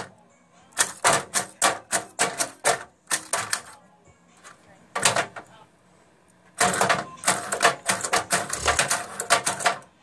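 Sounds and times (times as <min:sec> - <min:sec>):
toy car clattering on metal grille: 0:00.7 - 0:03.8, 0:04.4 - 0:05.5, 0:06.6 - 0:09.9.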